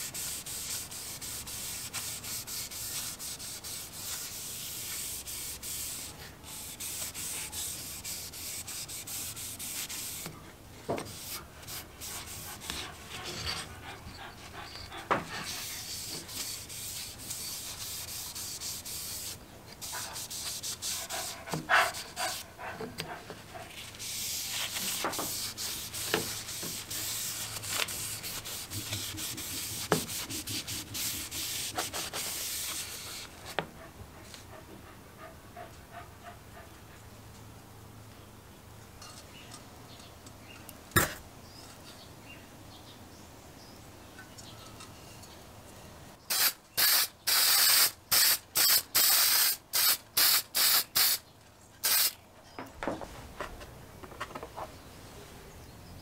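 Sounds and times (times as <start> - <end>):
paper towel rubbing on wood: 0.0 - 10.3, 23.8 - 33.3.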